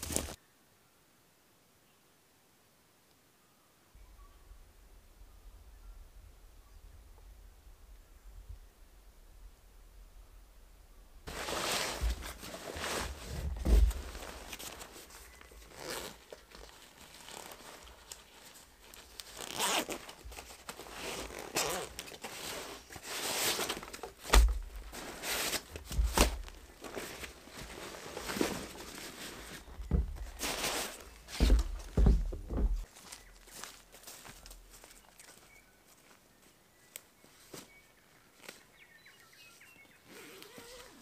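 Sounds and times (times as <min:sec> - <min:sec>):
nylon stuff sack rustling: 0:00.0 - 0:00.4, 0:11.3 - 0:35.0, 0:40.0 - 0:41.0
backpack zips pulled open: 0:15.7 - 0:16.3, 0:19.2 - 0:20.2, 0:20.9 - 0:23.8, 0:40.0 - 0:41.0.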